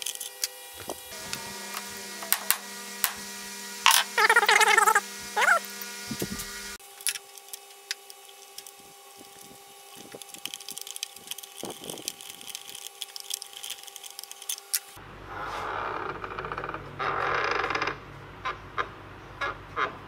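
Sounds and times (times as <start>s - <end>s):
rasping bursts of rapid ticks: 7.6s - 14.9s.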